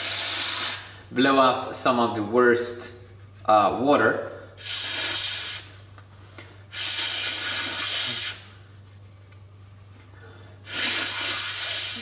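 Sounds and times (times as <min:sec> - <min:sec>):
hissing blast of air: 0:00.0 - 0:01.0, 0:04.6 - 0:05.8, 0:06.7 - 0:08.5, 0:10.6 - 0:12.0.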